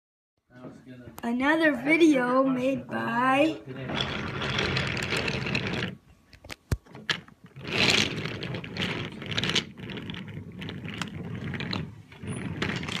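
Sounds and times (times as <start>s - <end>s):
wooden toy wheels rattling: 3.8s - 6.0s, 6.9s - 13.0s.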